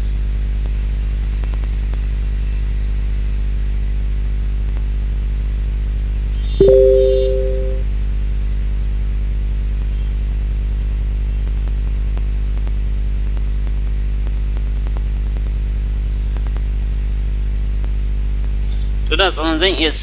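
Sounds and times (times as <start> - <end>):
two-note electronic tone: 6.6 - 7.8.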